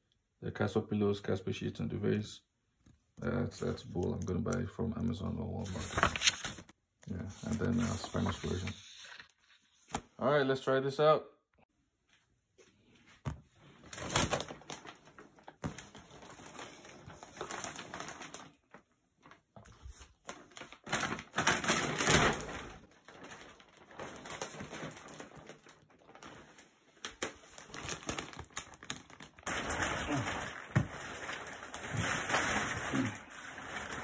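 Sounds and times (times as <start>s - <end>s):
plastic wrapping crinkling: 13.8s - 34.0s.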